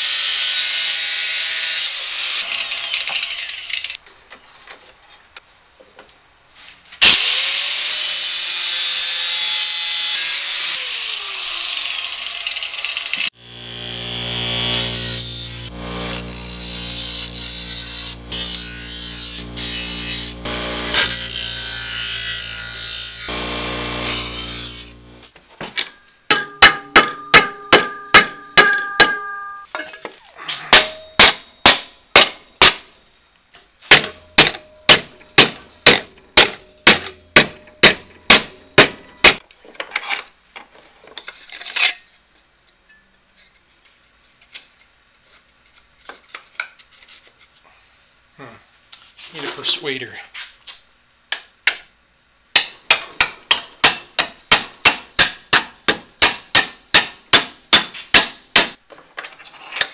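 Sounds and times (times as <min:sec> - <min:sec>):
bench grinder grinding steel: 0:00.0 - 0:04.0, 0:07.1 - 0:25.3
hammer ringing on metal sheet: 0:26.3 - 0:29.6, 0:33.9 - 0:39.4.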